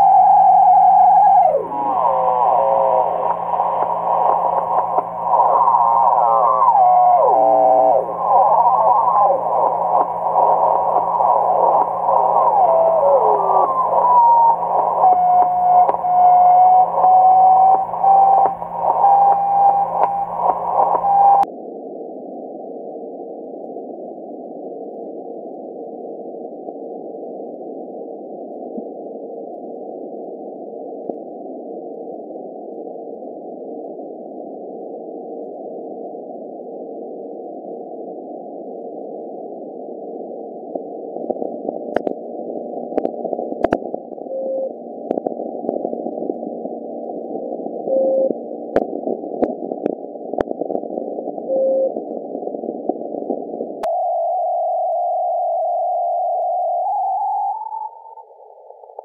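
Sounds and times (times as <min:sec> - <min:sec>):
radio hiss: 0:00.0 - 0:21.5, 0:40.3 - 0:59.0
sharp clicks: 0:17.7 - 0:21.5, 0:43.0 - 0:43.9
short beeps: 0:47.9 - 0:48.4, 0:51.5 - 0:51.9.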